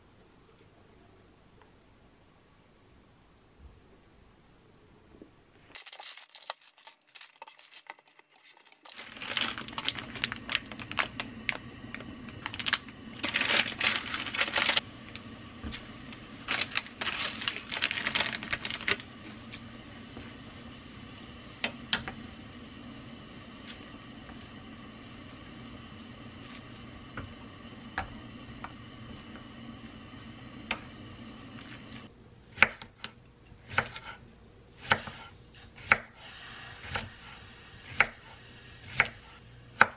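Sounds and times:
plastic packaging crinkling: 5.7 - 15.2, 16.1 - 19.4
pot on gas burner hissing: 5.7 - 32.7, 33.6 - 39.9.

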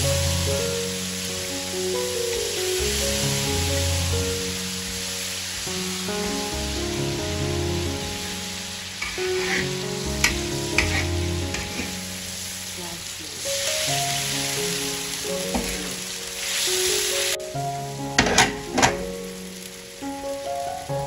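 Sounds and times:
oil sizzling in a wok: 0.0 - 21.0
metal spatula scraping wok: 9.0 - 12.1.

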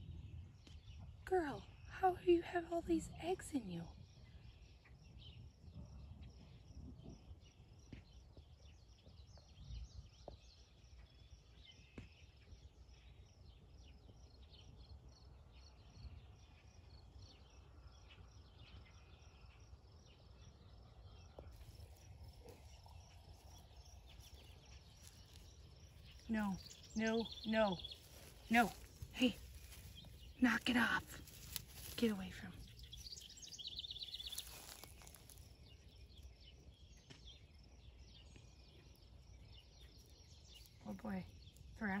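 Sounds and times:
pulsing insect chirp: 17.6 - 42.0.

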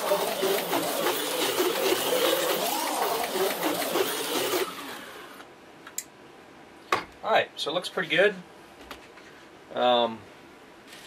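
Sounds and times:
small electric motor whine: 0.0 - 5.4.

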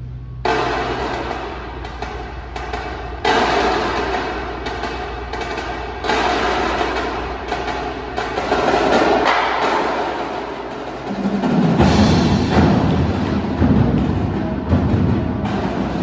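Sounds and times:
marching drums: 0.4 - 16.0
deep low percussion part: 11.6 - 16.0.

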